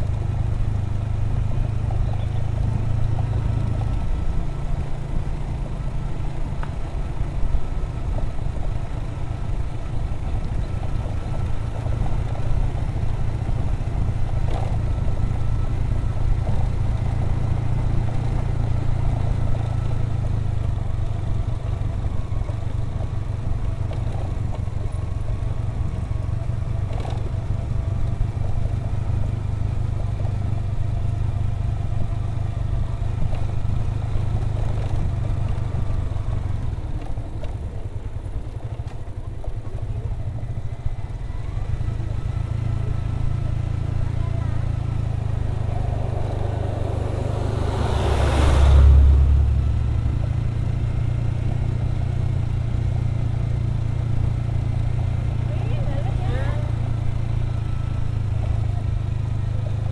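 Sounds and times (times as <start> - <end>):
motorcycle engine cruising: 0.0 - 59.9
road and wind noise: 0.0 - 59.9.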